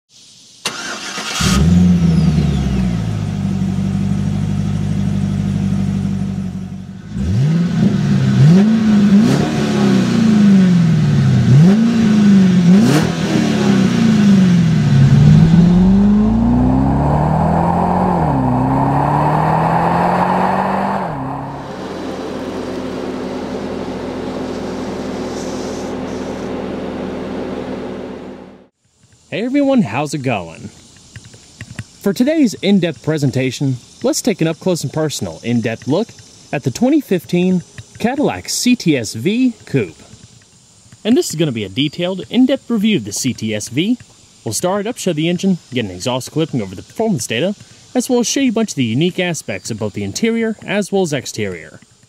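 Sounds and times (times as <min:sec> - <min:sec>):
car engine idling and revving: 0:00.7 - 0:29.2, 0:39.4 - 0:41.2.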